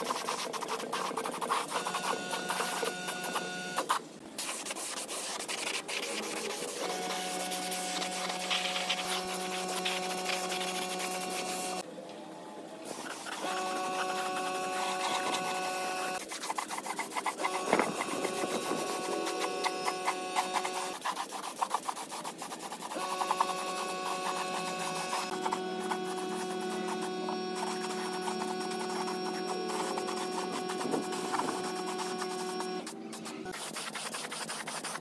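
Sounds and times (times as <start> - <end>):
steady hum: 23.2 - 33.5
paint spray gun hissing: 27.6 - 33.8.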